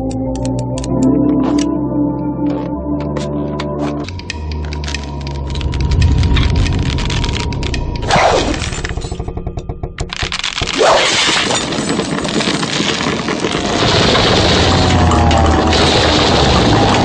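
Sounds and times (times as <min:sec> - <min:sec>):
dramatic music: 0:00.0 - 0:11.7, 0:13.8 - 0:17.0
cracking and crumbling effects: 0:00.0 - 0:17.0
rapid ticking: 0:04.1 - 0:10.8.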